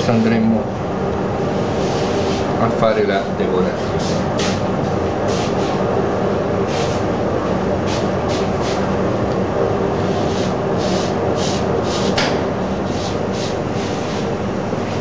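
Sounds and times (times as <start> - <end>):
kitchen machinery humming: 0.0 - 15.0
cloth wiping cardboard: 10.0 - 12.2.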